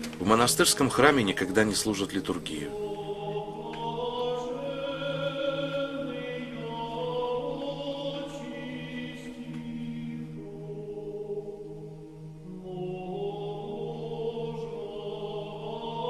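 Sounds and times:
choir chanting over drone: 0.2s - 16.0s.

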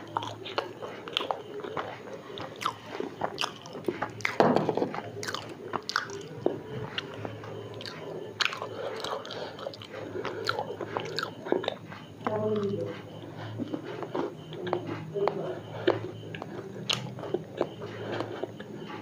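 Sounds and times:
crisp chewing crunches: 0.1s - 11.8s, 15.8s - 18.7s
wet mouth clicks: 5.2s - 6.3s, 15.8s - 17.4s.

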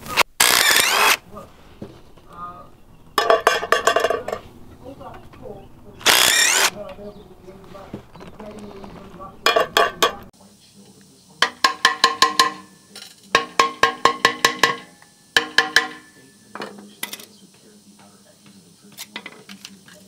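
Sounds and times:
impact driver burst: 0.0s - 1.2s, 6.0s - 6.8s
hammer ringing on steel: 11.4s - 16.5s.

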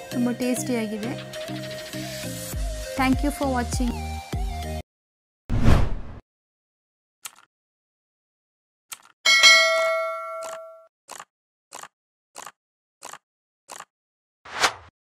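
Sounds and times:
bell-like ding: 9.3s - 10.8s.

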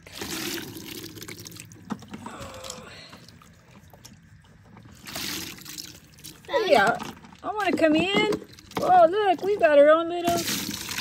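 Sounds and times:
wet water beads rattling into plastic: 4.9s - 11.0s.

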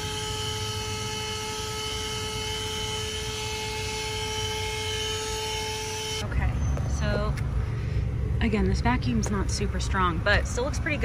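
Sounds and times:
handheld vacuum motor whine: 0.0s - 6.9s.

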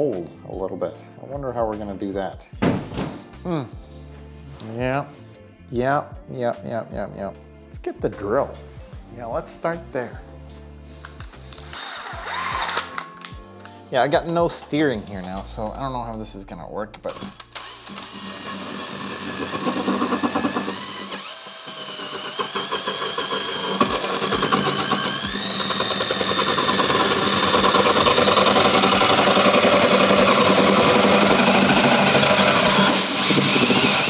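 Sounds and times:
cordless drill motor whine: 11.6s - 12.9s, 17.2s - 34.0s
hole saw grinding through wall: 17.1s - 34.0s.

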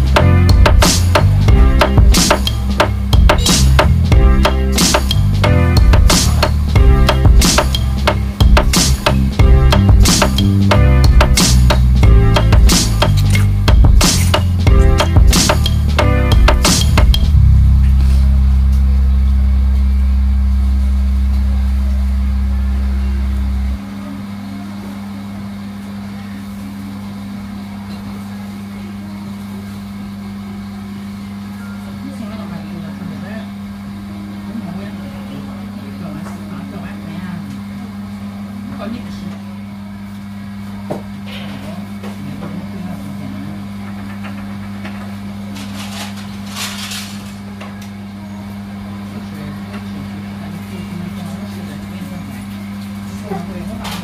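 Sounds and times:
deep rumble: 0.0s - 23.8s
steady low machine hum: 0.0s - 41.2s.

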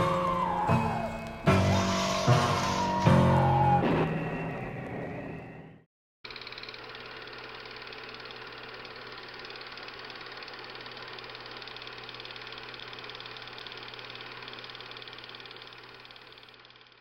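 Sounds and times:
film projector running: 6.3s - 17.0s.

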